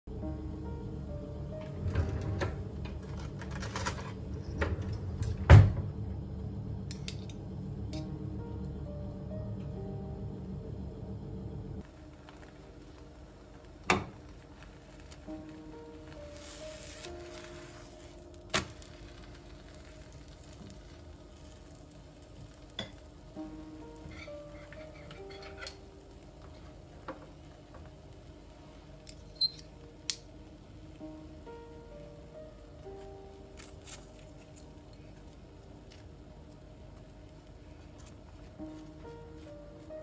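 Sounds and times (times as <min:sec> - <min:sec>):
batter sizzling in a frying pan: 0:11.8 - 0:30.0
crackling clicks: 0:17.0 - 0:23.5.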